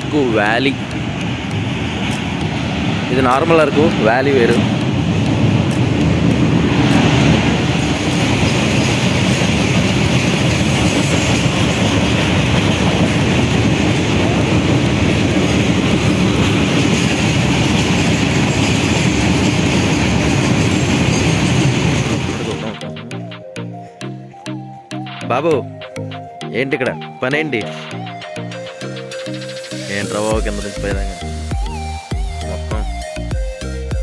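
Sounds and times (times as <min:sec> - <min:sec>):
freight train wheels rumbling and rattling: 0:00.0 - 0:23.3.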